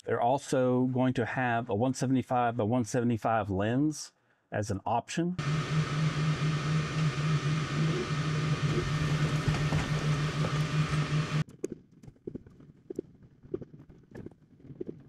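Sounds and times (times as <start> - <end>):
laser engraver humming and hissing: 5.4 - 11.4
pulsing low buzz: 5.4 - 11.4.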